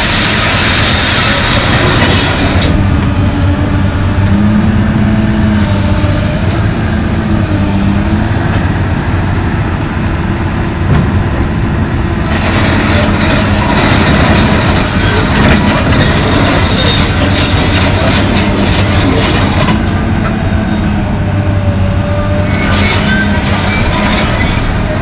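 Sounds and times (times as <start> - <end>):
excavator diesel engine: 0.0 - 25.0
hydraulic whine: 22.0 - 25.0.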